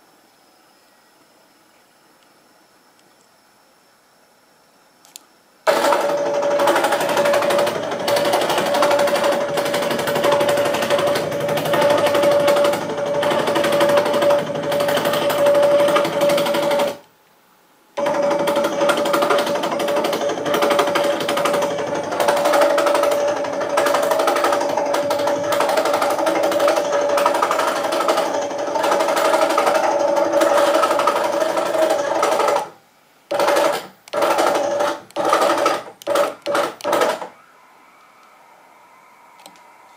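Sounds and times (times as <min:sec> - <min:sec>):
circular saw cutting wood: 0:06.0 - 0:17.0, 0:18.0 - 0:32.7.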